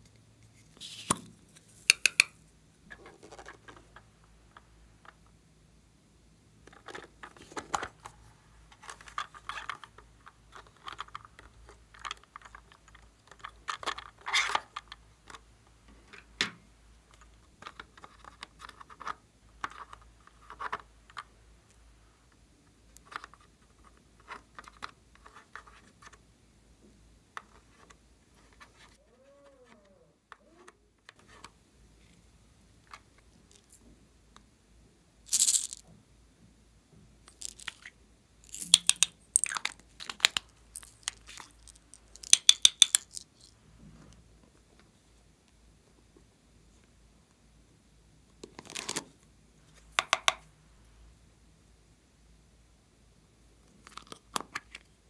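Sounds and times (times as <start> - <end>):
plastic cases clicking and tapping: 1.9 - 2.4, 38.5 - 43.2, 49.9 - 50.4
rustle or clatter: 35.3 - 36.0.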